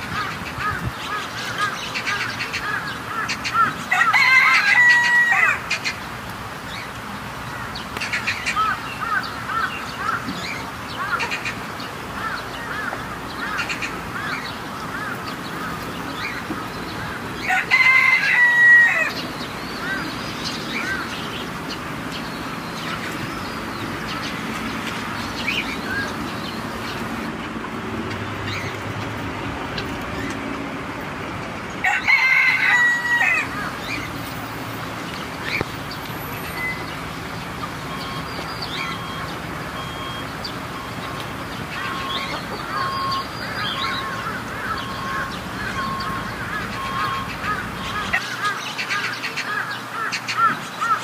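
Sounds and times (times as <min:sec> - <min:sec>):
poultry clucking and chirping: 0:00.0 - 0:06.0, 0:08.0 - 0:27.4, 0:35.4 - 0:50.6
rooster crowing: 0:03.8 - 0:05.8, 0:17.4 - 0:19.2, 0:31.8 - 0:34.0.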